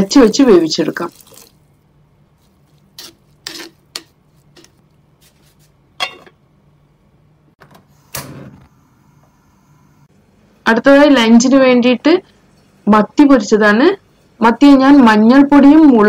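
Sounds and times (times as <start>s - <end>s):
metal lid clanking: 6.0s - 6.4s
gas burner click and whoosh: 7.8s - 8.8s.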